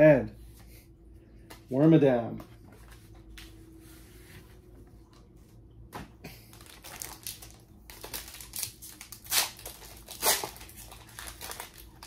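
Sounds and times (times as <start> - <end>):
foil wrapper crinkling: 6.4 - 12.0
foil ripping: 6.5 - 12.0.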